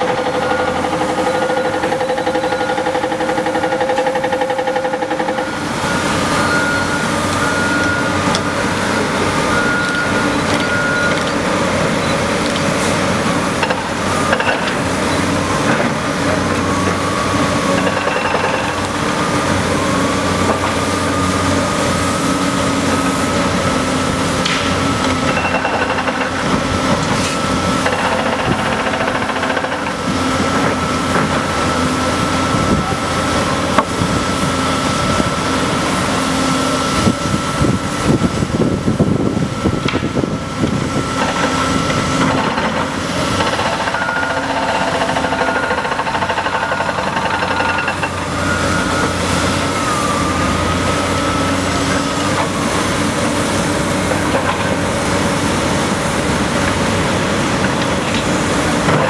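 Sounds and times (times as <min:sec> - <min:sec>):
diesel engine drone: 0:00.0 - 0:59.0
high hydraulic whine: 0:00.0 - 0:59.0.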